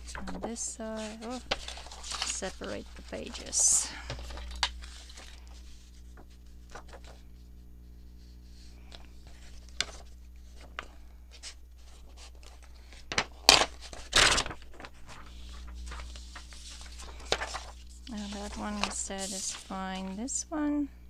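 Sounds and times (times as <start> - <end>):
loud short paper rustles: 0.0 - 7.2, 11.4 - 20.2
book pages rustling: 0.0 - 7.5, 8.2 - 20.3.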